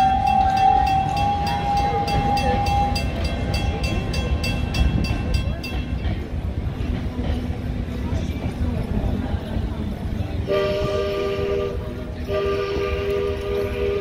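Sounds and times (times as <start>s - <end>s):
crossing signal bell ringing: 0.0s - 6.3s
train cars rumbling past: 0.0s - 14.0s.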